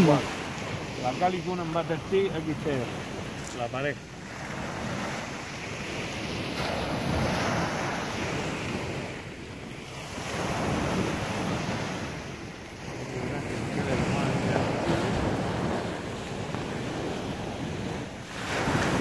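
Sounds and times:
surf on the shore: 0.0s - 19.0s
wind on microphone: 4.3s - 19.0s.

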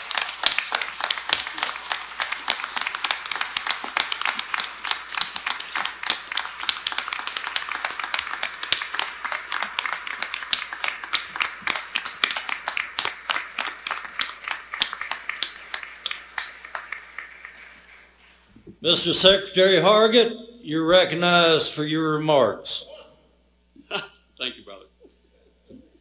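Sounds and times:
people clapping: 0.0s - 18.2s.

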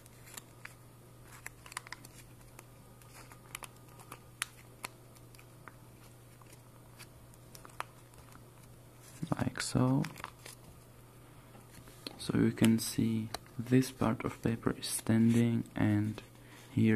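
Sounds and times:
paper crinkling while folded: 0.0s - 10.8s
steady low hum: 0.0s - 16.9s.

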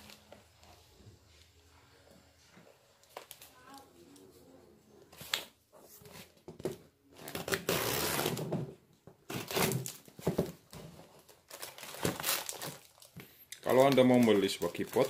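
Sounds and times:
packing tape ripping: 7.2s - 8.5s, 9.3s - 10.1s, 11.2s - 15.0s.

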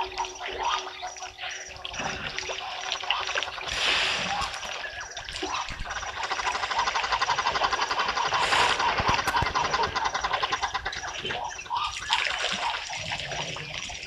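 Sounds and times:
fast rhythmic chirring: 0.0s - 14.0s
elephants splashing water: 1.7s - 10.8s.

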